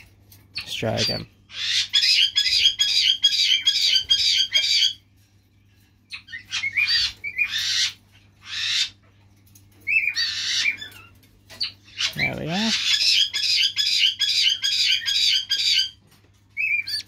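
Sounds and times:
parrot chick squawking: 1.0s - 5.0s, 6.1s - 9.0s, 9.9s - 16.0s, 16.6s - 17.0s.

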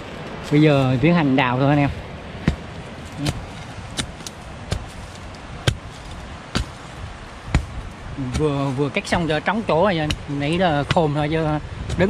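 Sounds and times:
digging tool chopping into ground: 2.4s - 8.7s, 10.0s - 11.1s.

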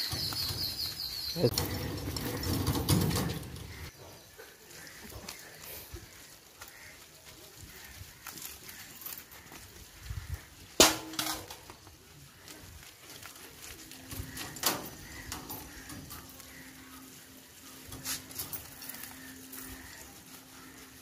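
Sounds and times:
steel bowl clanking on concrete: 10.8s - 11.6s.

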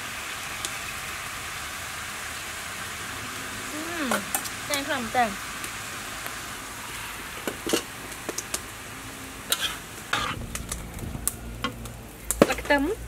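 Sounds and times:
food sizzling in a wok: 0.0s - 13.0s
metal spatula scraping pan: 9.5s - 10.7s.

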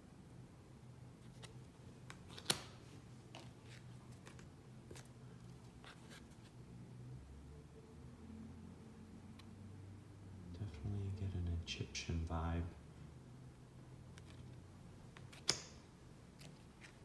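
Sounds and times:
faint low hum: 0.0s - 17.0s
cards flicking and sliding: 1.3s - 2.8s.

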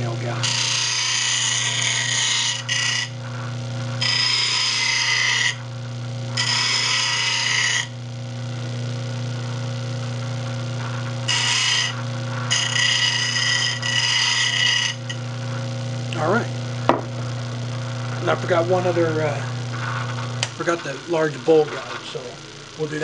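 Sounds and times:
bench grinder humming: 0.0s - 23.0s
steel grinding on wheel: 0.4s - 3.4s, 4.0s - 5.6s, 6.4s - 7.9s, 11.2s - 15.2s.

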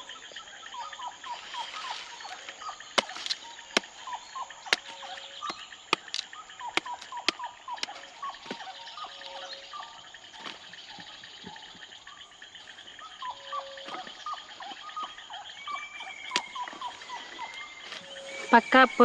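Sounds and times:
frogs chirping: 0.0s - 19.0s
high insect hum: 0.0s - 19.0s
plant stems snapping: 3.0s - 3.9s.

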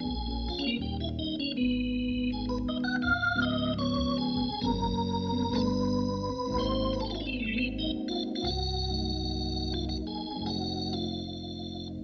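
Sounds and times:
deep bass: 0.0s - 10.9s
jazz organ chords: 0.0s - 12.0s.

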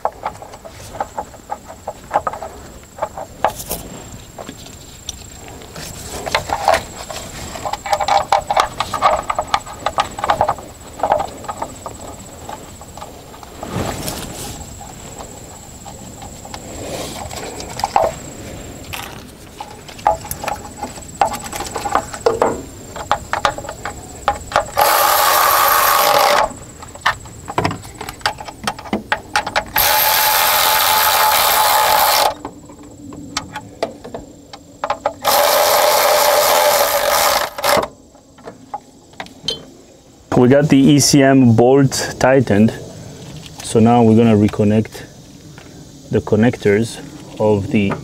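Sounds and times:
electric ratchet running: 24.7s - 26.6s, 29.8s - 32.4s, 35.2s - 37.8s.

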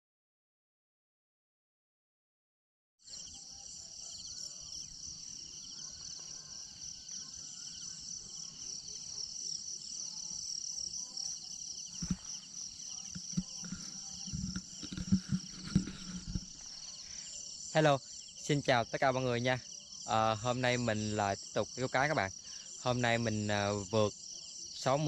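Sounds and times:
insects trilling: 3.0s - 25.0s
low thumps: 12.0s - 12.3s.

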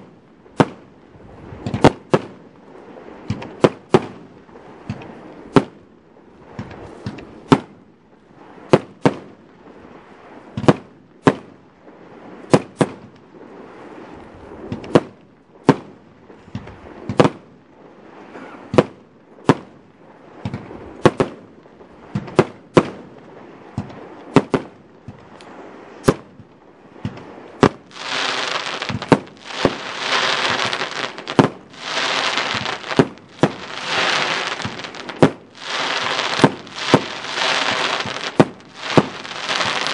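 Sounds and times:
firework shots: 23.8s - 24.8s, 27.0s - 39.9s
firework crackle: 27.6s - 39.9s.

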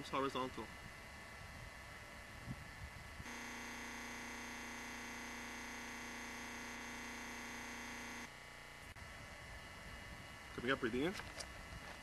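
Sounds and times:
steady held tone: 3.2s - 9.0s.

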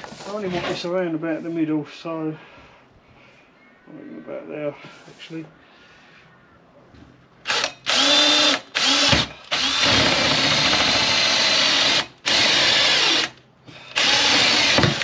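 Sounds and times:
drill cutting into plastic: 7.5s - 15.0s.

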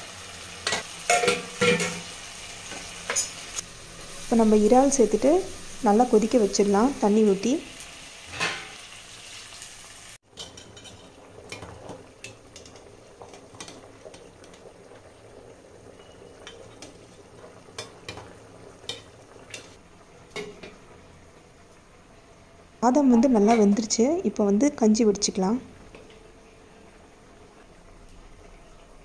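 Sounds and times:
food sizzling in a pot: 0.0s - 29.0s
spoon scraping and clinking pot: 10.4s - 11.7s.

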